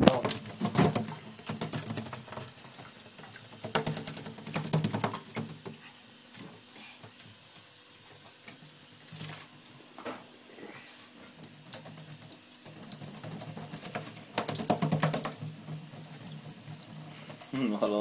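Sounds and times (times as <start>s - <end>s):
bird splashing and fluttering: 0.0s - 6.4s, 9.0s - 9.6s, 11.3s - 17.8s
tap trickling: 11.7s - 17.5s.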